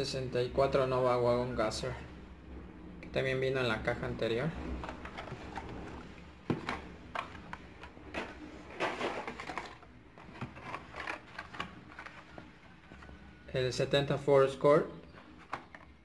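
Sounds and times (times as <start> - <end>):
packaging rustling: 4.6 - 13.5.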